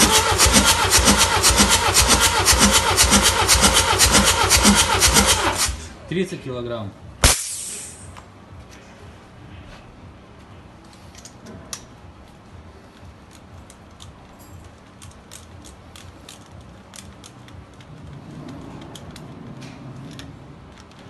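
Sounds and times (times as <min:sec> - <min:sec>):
light metallic clicks and clinks: 0:13.6 - 0:15.7.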